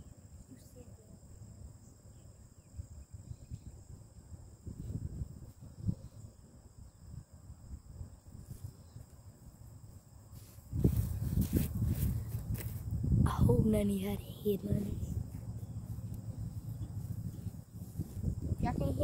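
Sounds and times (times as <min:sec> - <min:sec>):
high insect drone: 0:00.0 - 0:19.0
low noise: 0:10.4 - 0:19.0.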